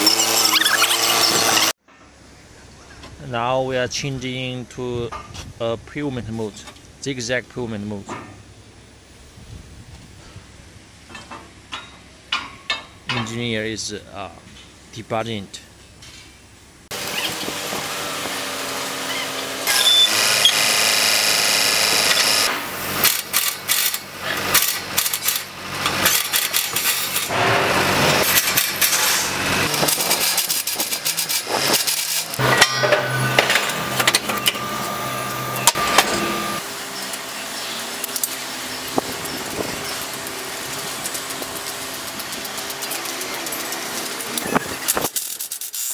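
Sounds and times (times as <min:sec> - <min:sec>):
cordless drill whirring: 0:18.2 - 0:22.5.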